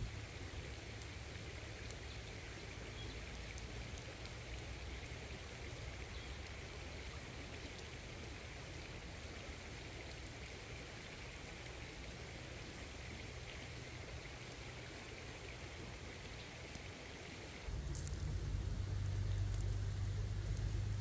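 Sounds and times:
wood fire crackling and popping: 17.7 - 21.0.

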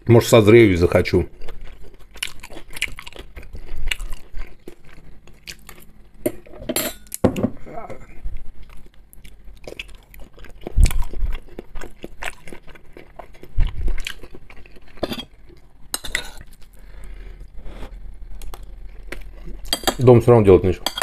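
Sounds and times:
chewing and biting food: 1.3 - 6.0, 8.4 - 15.8
spoon clinking on a plate: 6.3 - 7.1.

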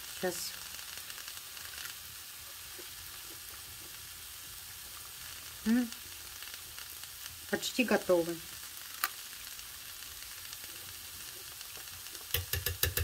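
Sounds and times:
greens sizzling in oil: 0.0 - 13.0.

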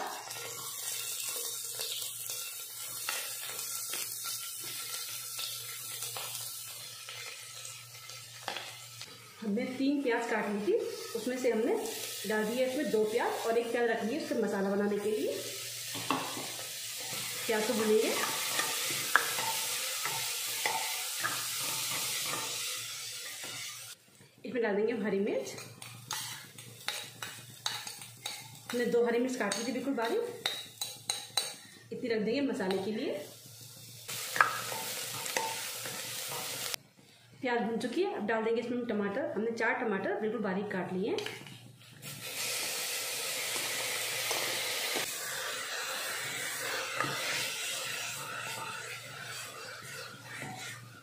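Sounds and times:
onions sizzling in hot oil: 0.0 - 24.0, 25.2 - 36.8, 42.0 - 51.0
ladle scraping pot: 46.3 - 51.0.

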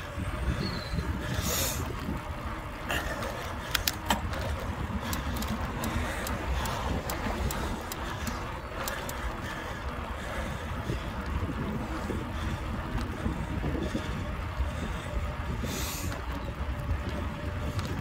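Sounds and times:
wind rumbling on microphone: 0.0 - 18.0
light sharp clicks: 3.6 - 9.3.

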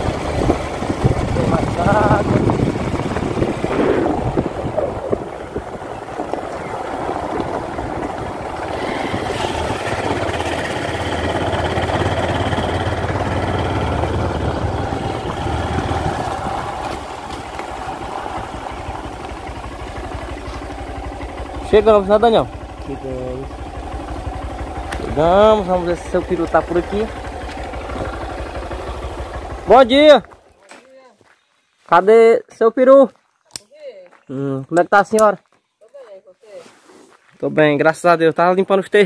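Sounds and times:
wind noise on microphone: 0.0 - 10.0
motorcycle engine running: 0.0 - 30.6
road noise: 0.0 - 32.1.

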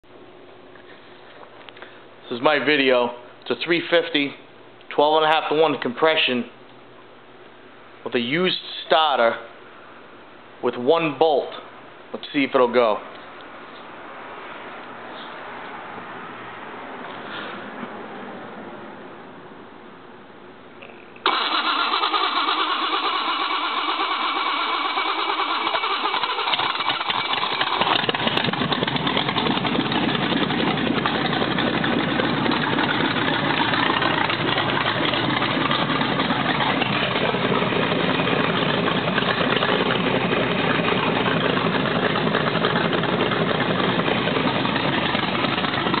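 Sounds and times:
v eight engine running loud: 21.3 - 46.0.

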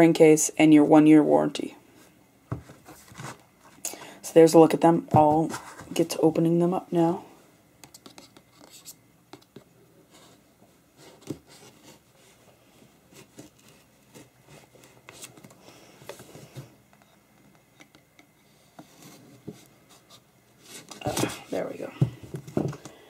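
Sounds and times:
hands handling cardboard box: 2.5 - 3.8.

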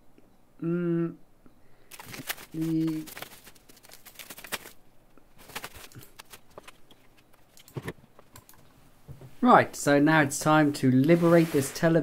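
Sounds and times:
foam sheet rustling and crackling: 1.9 - 4.8, 5.4 - 7.6, 11.1 - 12.0.

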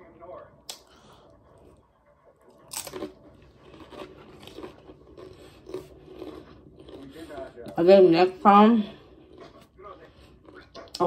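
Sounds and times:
person crunching chips: 2.5 - 7.4.

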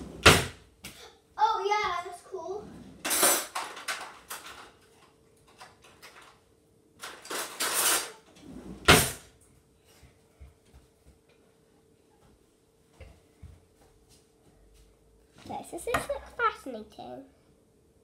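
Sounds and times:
faint steady hum: 0.0 - 18.0
household objects clattering: 2.7 - 6.4.

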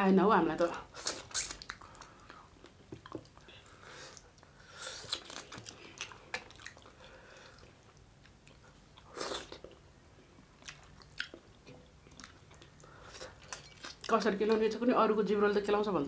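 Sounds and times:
people chewing and crunching: 0.9 - 9.8, 10.5 - 14.1.

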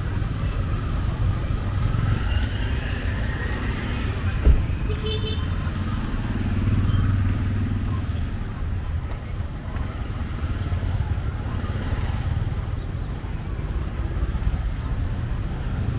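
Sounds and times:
vehicles passing: 0.0 - 15.9
sharp thump: 4.4 - 4.7.

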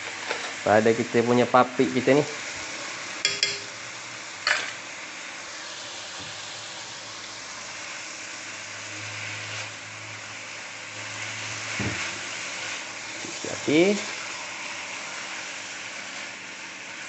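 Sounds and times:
chicken sizzling in a wok: 0.0 - 17.0
spatula clacking against wok: 3.2 - 3.7.

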